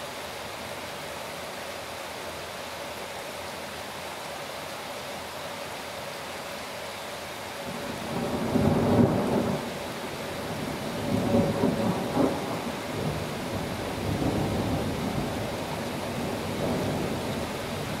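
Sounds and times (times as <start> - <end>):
steady rain: 0.0 - 18.0
thunder rumbling: 7.7 - 9.7, 10.5 - 17.4.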